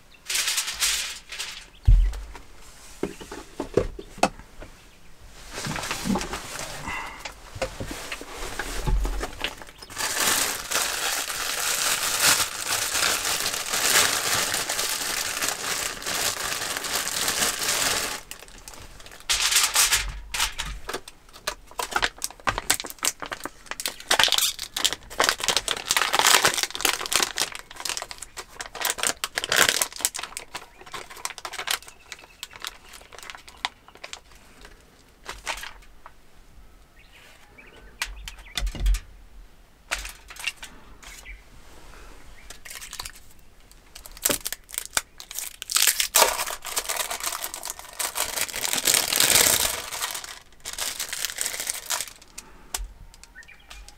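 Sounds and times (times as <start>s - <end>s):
packet rustling and crackling: 0.0s - 2.5s, 5.5s - 36.0s, 42.4s - 53.9s
plastic packaging crinkling: 0.2s - 2.4s, 7.9s - 35.9s, 42.5s - 52.5s.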